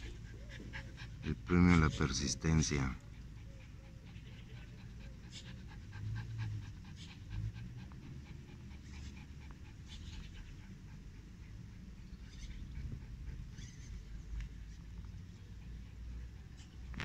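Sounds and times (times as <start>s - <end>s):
dog panting: 0.0s - 17.0s.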